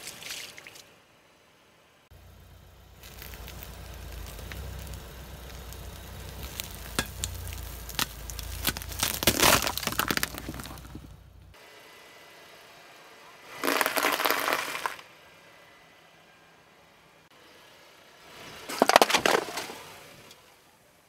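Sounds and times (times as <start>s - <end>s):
low engine rumble: 1.0s - 21.0s
candies crunching and cracking: 3.0s - 11.2s, 13.6s - 15.0s.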